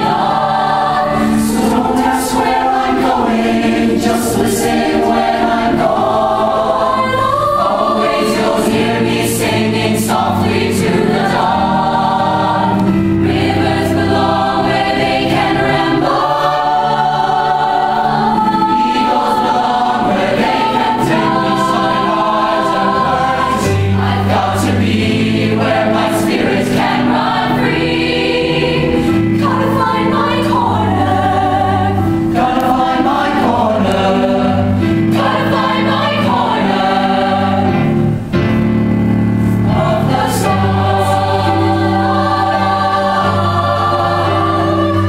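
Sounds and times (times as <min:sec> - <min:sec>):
choir singing in harmony: 0:00.0 - 0:45.0.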